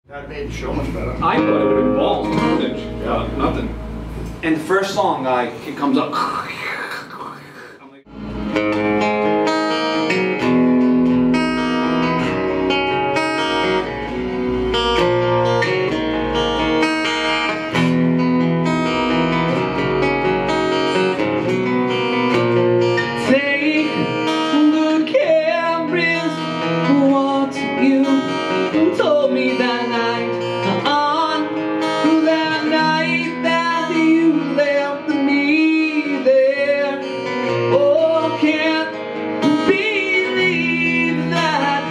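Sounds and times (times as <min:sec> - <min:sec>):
acoustic guitar playing: 0:00.1 - 0:06.6, 0:07.2 - 0:41.9
man singing: 0:23.1 - 0:41.9.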